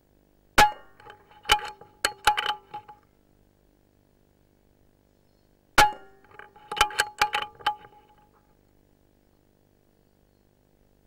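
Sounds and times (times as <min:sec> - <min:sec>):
metal clanging: 0:00.6 - 0:03.0, 0:05.8 - 0:08.2.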